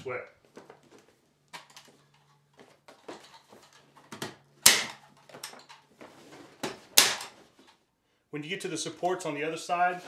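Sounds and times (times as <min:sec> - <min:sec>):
staple gun shot: 0:04.6 - 0:05.0, 0:07.0 - 0:07.3.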